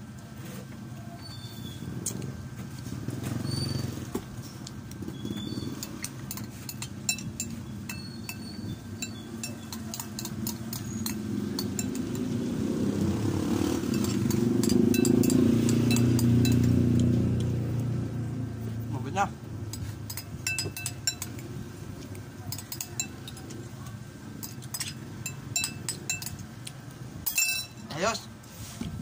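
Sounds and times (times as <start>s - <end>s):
low motor rumble: 0.0s - 27.8s
metal spoon tapping glass bowl: 5.8s - 12.4s, 13.8s - 17.1s, 19.7s - 21.4s, 22.5s - 23.5s, 24.4s - 26.4s, 27.2s - 27.9s.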